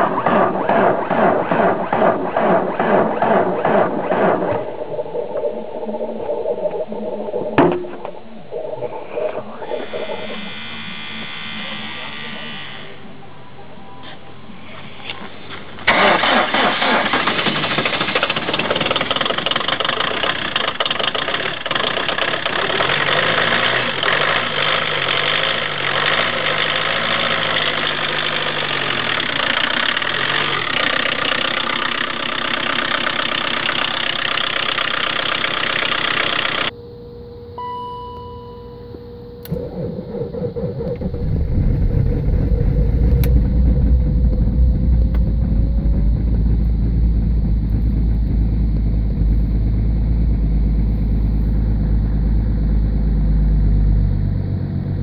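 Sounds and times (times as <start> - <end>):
diesel engine cranking and idling: 0.0 - 13.2, 15.0 - 36.8, 39.4 - 55.0
car engine running loudly: 0.0 - 13.3, 14.4 - 36.7, 39.4 - 55.0
short beep: 37.5 - 39.4.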